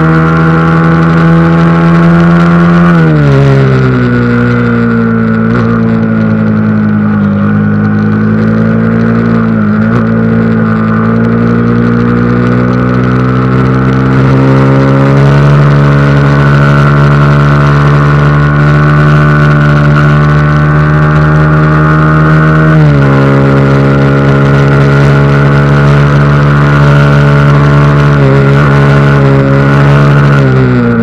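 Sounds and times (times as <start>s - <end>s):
motorcycle engine at high revs: 0.0s - 31.0s.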